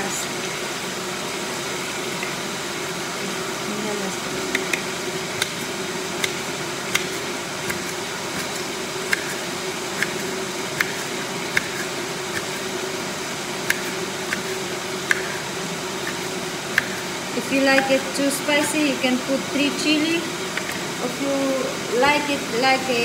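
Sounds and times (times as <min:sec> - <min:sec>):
background hum: 0:00.0 - 0:23.0
knife chopping on cutting board: 0:05.4 - 0:09.4, 0:10.0 - 0:12.6, 0:16.1 - 0:17.1.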